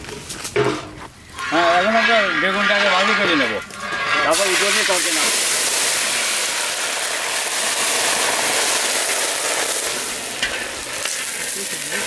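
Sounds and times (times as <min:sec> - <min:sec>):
vegetables sizzling in hot oil: 0:04.3 - 0:12.0.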